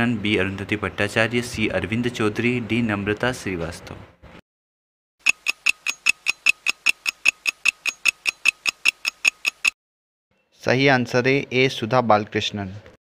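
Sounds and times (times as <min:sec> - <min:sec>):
clock ticking fast: 0:05.2 - 0:09.8.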